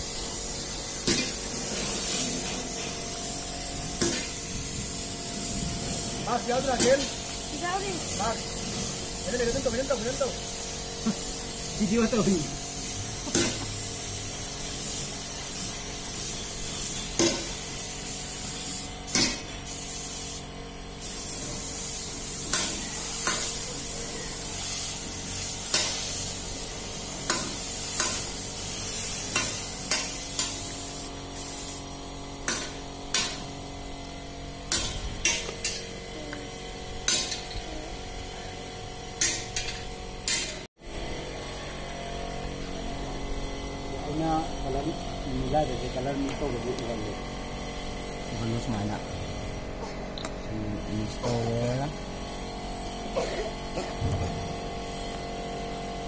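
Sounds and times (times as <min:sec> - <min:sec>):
paint spray gun hissing: 0:00.0 - 0:56.0.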